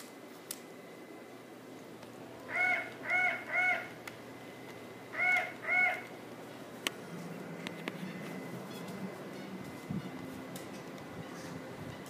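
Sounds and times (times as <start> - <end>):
electronic toy parrot squawking: 2.5 - 3.9, 5.1 - 6.1.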